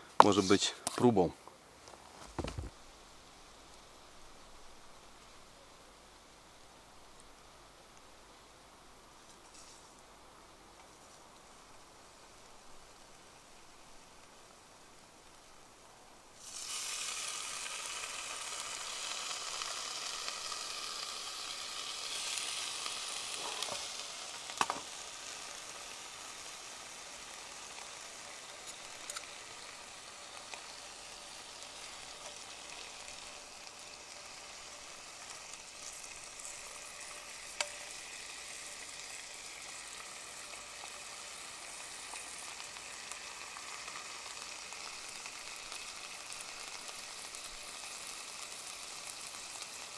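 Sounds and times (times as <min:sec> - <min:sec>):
food sizzling in a hot pan: 0:02.4 - 0:49.9
sharp ticks and pops: 0:28.6 - 0:29.4, 0:34.9 - 0:38.0.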